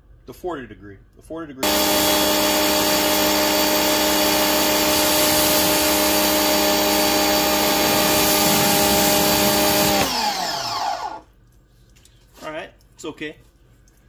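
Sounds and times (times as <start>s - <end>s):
pressure washer motor hum: 1.6s - 11.3s
water spraying hiss: 7.8s - 9.9s.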